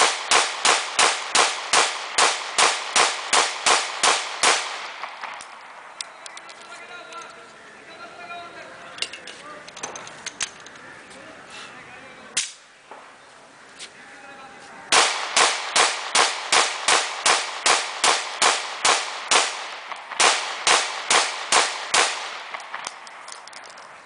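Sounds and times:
pistol shots: 0:00.0 - 0:05.6, 0:14.9 - 0:23.2.

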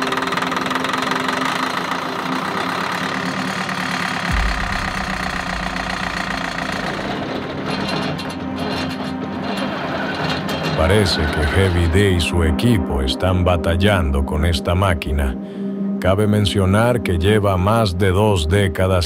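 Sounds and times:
deep rumble: 0:04.3 - 0:08.4.

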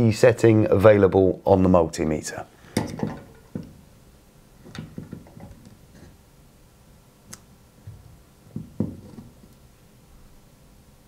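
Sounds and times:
loud knock: 0:08.5 - 0:09.3.

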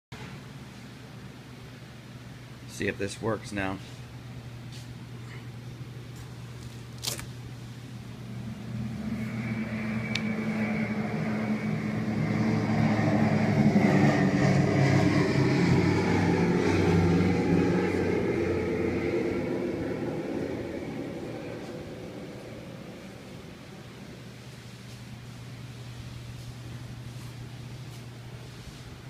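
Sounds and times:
propeller engine drone from speaker: 0:00.2 - 0:29.0.

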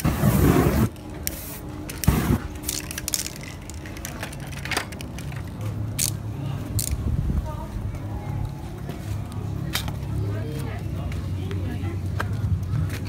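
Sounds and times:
flame torch whoosh: 0:00.0 - 0:00.9
spray paint hissing: 0:00.0 - 0:03.8.

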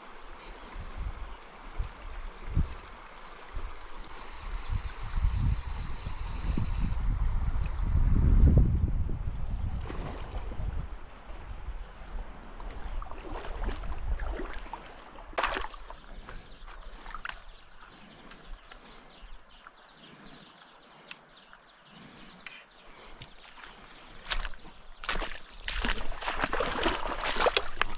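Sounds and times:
wind buffeting microphone: 0:00.7 - 0:20.3
water splashing around legs: 0:12.6 - 0:17.6, 0:23.2 - 0:27.9.

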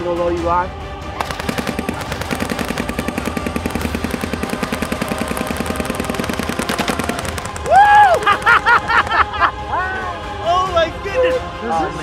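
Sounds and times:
low drone: 0:00.8 - 0:10.4
airsoft gun automatic fire: 0:01.2 - 0:09.2.

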